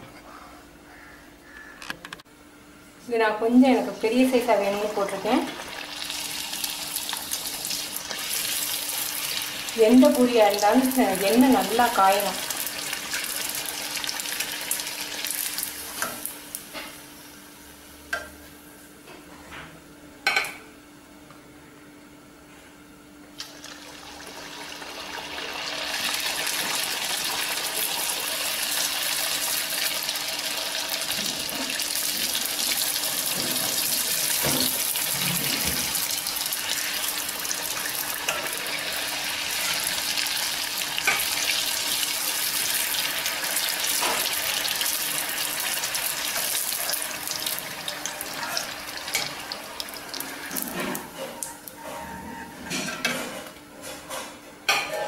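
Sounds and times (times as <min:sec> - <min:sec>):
dough sizzling in hot oil: 0:04.9 - 0:16.8, 0:23.4 - 0:50.8.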